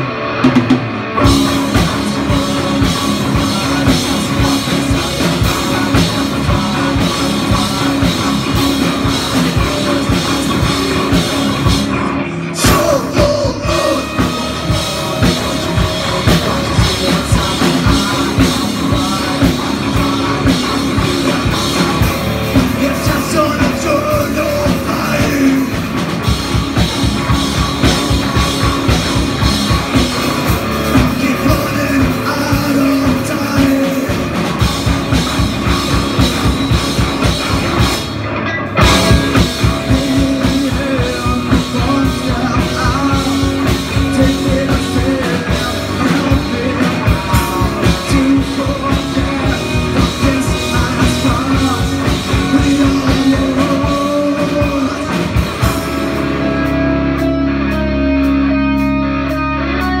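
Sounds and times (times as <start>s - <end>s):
bass guitar: 0.0s - 60.0s
drum kit: 0.0s - 60.0s
electric guitars: 0.0s - 60.0s.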